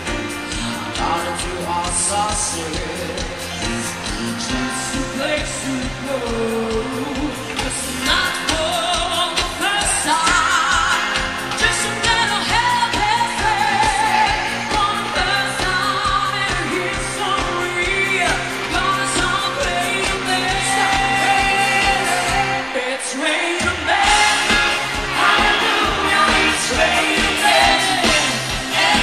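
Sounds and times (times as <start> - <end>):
live pop band: 0.0 - 29.0
person singing: 0.0 - 29.0
drum beat: 23.7 - 29.0.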